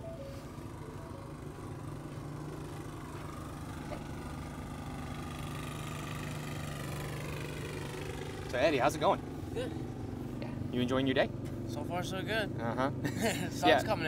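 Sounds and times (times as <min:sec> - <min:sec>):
generators running: 0:00.0 - 0:14.0.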